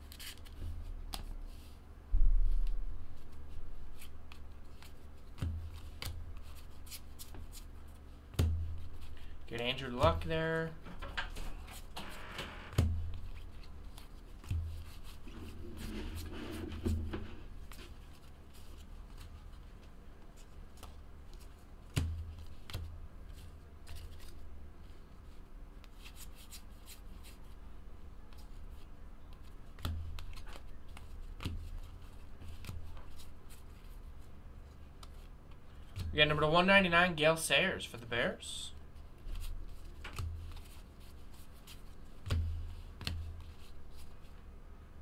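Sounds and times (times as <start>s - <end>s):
trading cards flipping: 0.0s - 1.8s, 20.4s - 24.5s, 39.3s - 44.1s.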